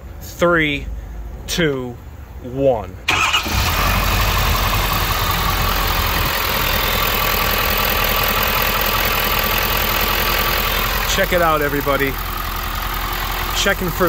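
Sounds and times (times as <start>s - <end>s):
diesel engine starting and idling: 3.0s - 14.0s.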